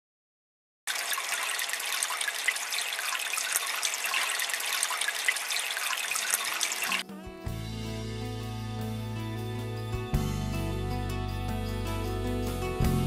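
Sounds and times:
water splashing: 0:00.9 - 0:07.0.

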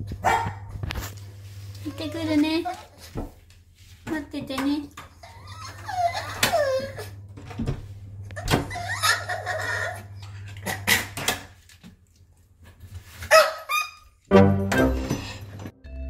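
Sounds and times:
dog whining and yelping: 0:05.2 - 0:07.2, 0:08.4 - 0:10.8, 0:13.3 - 0:14.2
music: 0:14.3 - 0:16.0.

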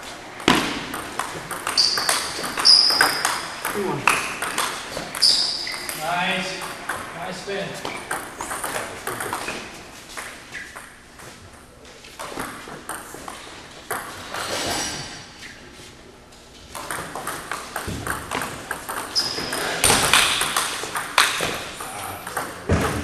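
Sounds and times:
ball bouncing on table: 0:00.4 - 0:06.0, 0:16.7 - 0:23.0
table tennis ball hitting paddles: 0:00.4 - 0:11.4, 0:12.1 - 0:14.4, 0:16.7 - 0:23.0.

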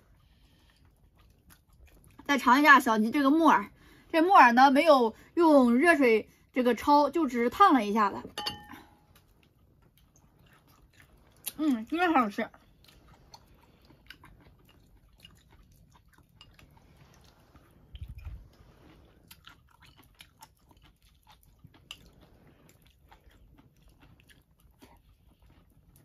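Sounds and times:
faint chewing: 0:00.0 - 0:03.1, 0:08.7 - 0:26.0.

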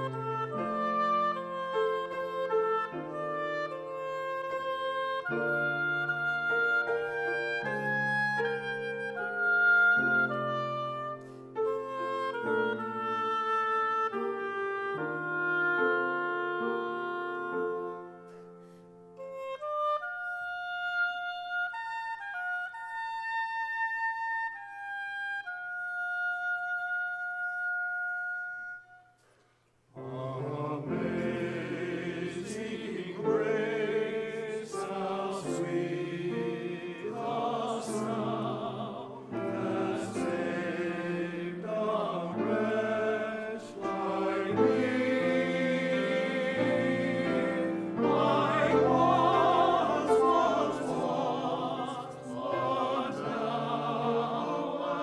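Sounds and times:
church choir singing: 0:00.0 - 0:18.8, 0:30.0 - 0:55.0
piano accompaniment: 0:00.0 - 0:20.0, 0:30.0 - 0:55.0
solo woodwind melody: 0:00.0 - 0:55.0.

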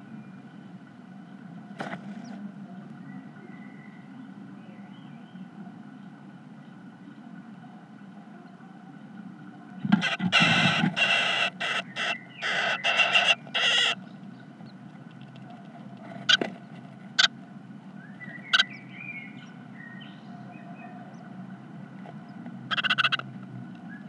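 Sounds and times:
birds rustling and scrabbling: 0:01.7 - 0:02.5, 0:09.9 - 0:17.4.

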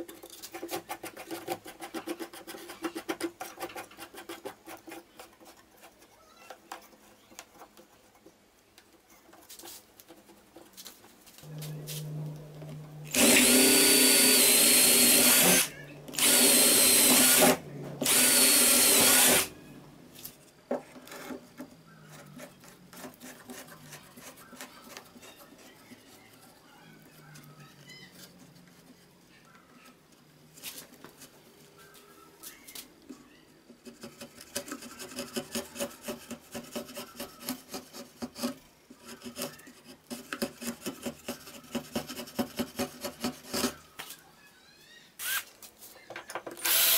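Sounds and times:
cordless drill boring wood: 0:13.1 - 0:19.6, 0:45.2 - 0:45.4, 0:46.6 - 0:46.9.

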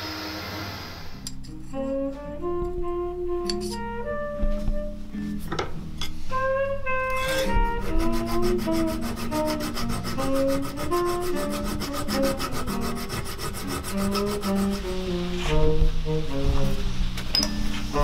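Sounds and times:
instrumental music: 0:00.0 - 0:18.0
file rasping on metal: 0:07.1 - 0:14.9.

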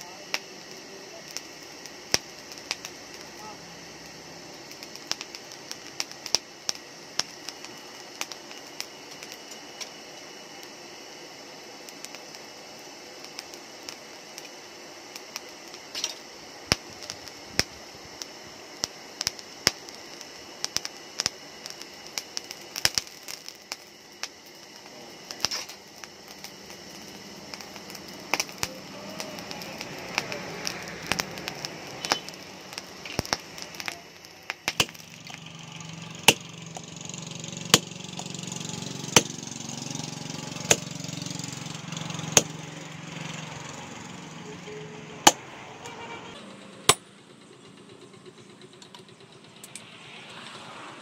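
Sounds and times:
steady low hum: 0:00.0 - 0:51.0
hammer striking hot metal: 0:20.7 - 0:47.1.

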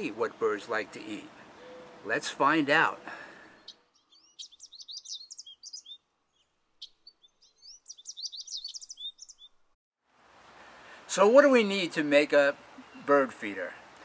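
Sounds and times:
songbird twittering: 0:01.5 - 0:02.1, 0:03.5 - 0:09.6.

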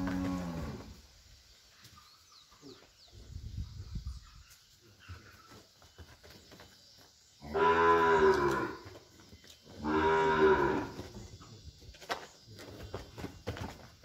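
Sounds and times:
cow mooing: 0:07.5 - 0:08.8, 0:09.8 - 0:11.0.

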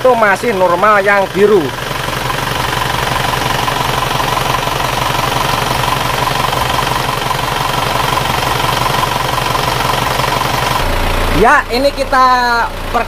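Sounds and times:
diesel engine idling with rattle: 0:00.0 - 0:13.0.

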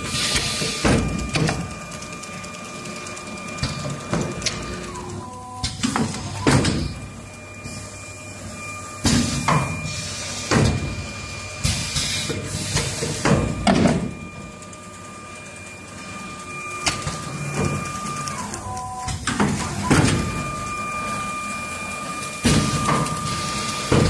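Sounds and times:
pneumatic cylinders clacking: 0:00.0 - 0:01.7, 0:03.6 - 0:07.0, 0:09.0 - 0:11.0, 0:11.6 - 0:14.2, 0:16.8 - 0:20.5
machine hum: 0:00.0 - 0:24.0.

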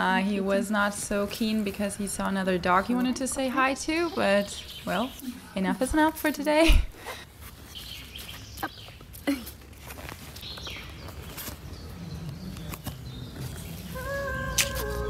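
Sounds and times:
fabric rustling: 0:09.2 - 0:11.7.

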